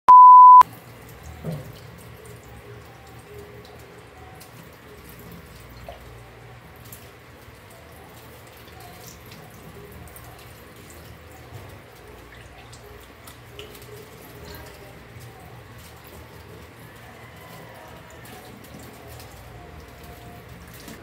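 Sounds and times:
tap water splashing into metal sink: 1.1s - 6.1s.

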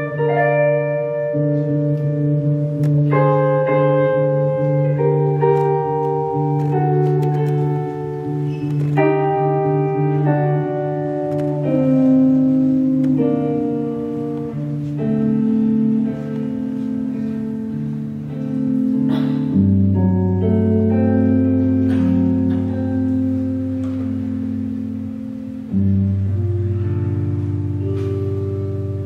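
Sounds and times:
big band playing sustained chords: 0.0s - 29.0s.

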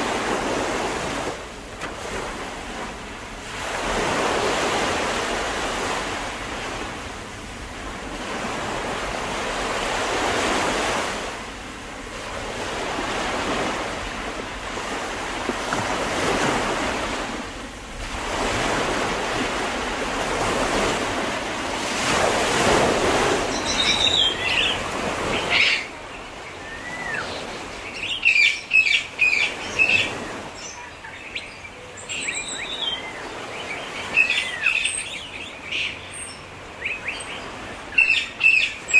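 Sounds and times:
sea waves washing ashore: 0.0s - 38.9s
small birds chirping: 23.4s - 38.9s.

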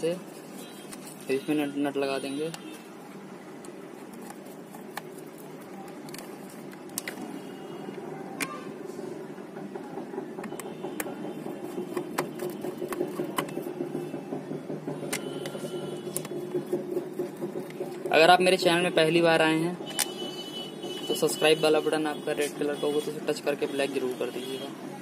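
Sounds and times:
air pump humming: 0.0s - 19.2s, 19.8s - 23.1s
plastic casing clicks and taps: 5.9s - 7.3s, 10.4s - 11.3s.

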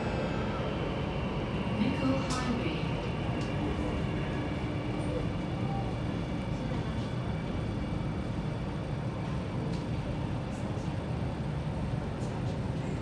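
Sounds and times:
train rumble inside carriage: 0.0s - 13.0s.

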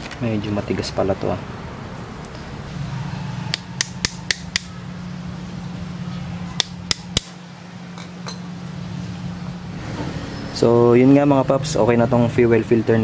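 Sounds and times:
sharp plastic clicks: 3.5s - 4.7s.

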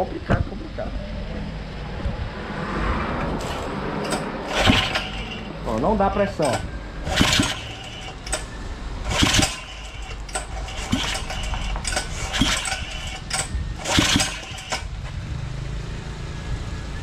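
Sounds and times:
engine pull-starter cranking: 3.2s - 15.2s.

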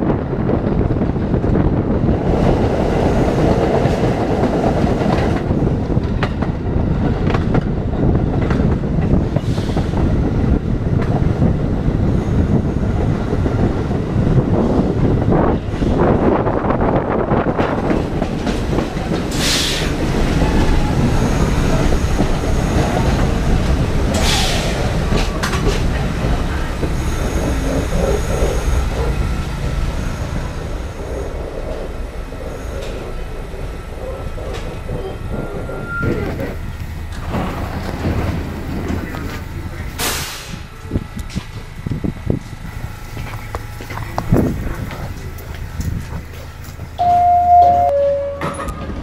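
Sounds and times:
train wheels rumbling on rail: 0.0s - 49.0s
faint high wheel squeal: 34.9s - 36.6s.

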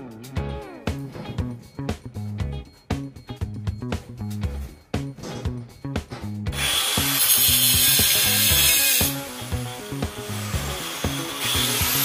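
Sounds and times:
background music with bass line: 0.0s - 12.0s
angle grinder grinding steel: 6.5s - 12.0s.

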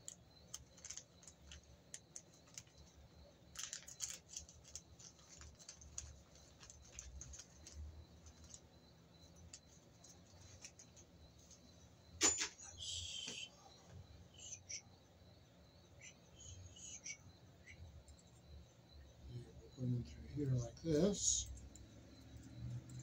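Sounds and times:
small screws clicking and rattling: 0.0s - 2.9s, 3.5s - 8.7s.

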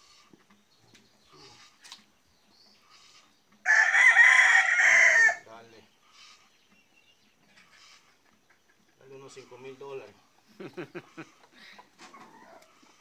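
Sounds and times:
rooster crowing: 3.6s - 5.4s.

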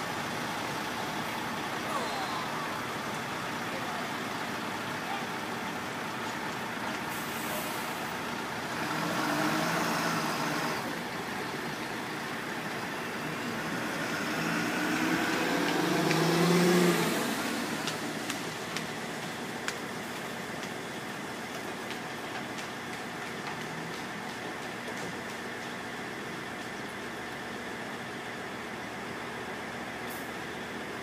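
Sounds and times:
vehicle engines running: 0.0s - 31.0s.

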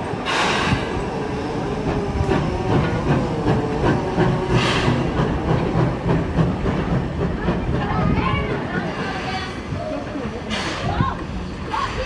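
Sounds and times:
steam bursts: 0.1s - 1.5s, 2.1s - 6.9s, 8.9s - 12.0s.

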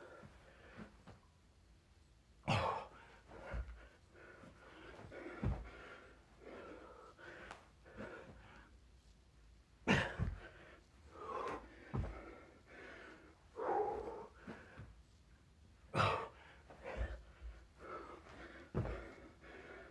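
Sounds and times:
man panting hard: 2.5s - 8.7s, 9.9s - 14.9s, 16.0s - 19.9s
thuds on the floor: 5.4s - 5.8s, 11.9s - 12.3s, 18.7s - 19.1s.

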